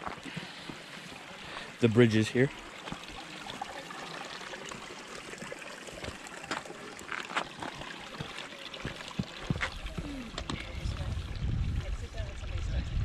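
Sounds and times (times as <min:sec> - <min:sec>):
footsteps on stony path: 0:00.0 - 0:01.7, 0:05.9 - 0:10.8
stream trickling over stones: 0:00.0 - 0:13.0.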